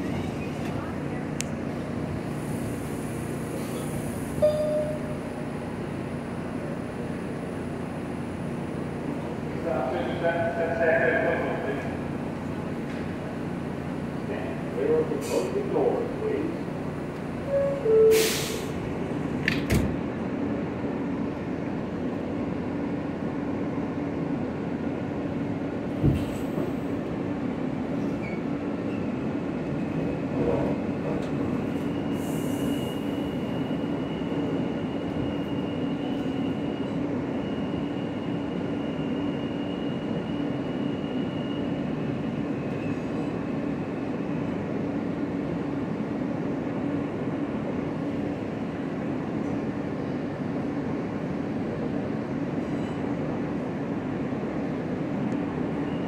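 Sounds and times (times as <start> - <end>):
train doors shutting: 1.7 - 5.6, 15.1 - 15.8, 17.1 - 20.3, 25.8 - 27.1, 27.8 - 43.4
two-note door chime: 4.4 - 5.2.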